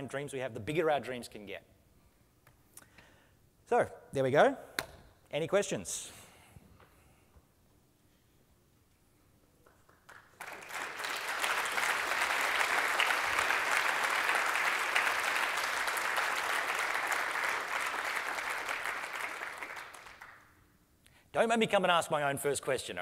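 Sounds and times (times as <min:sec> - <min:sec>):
audience applauding: 0:09.7 - 0:20.5.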